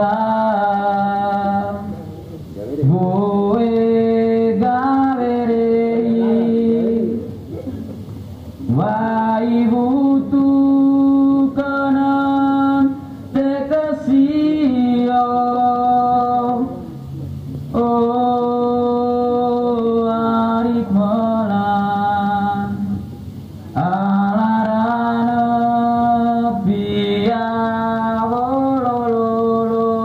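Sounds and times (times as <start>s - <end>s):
person singing long notes: 0.0s - 2.1s, 2.8s - 7.6s, 8.7s - 23.1s, 23.7s - 30.0s.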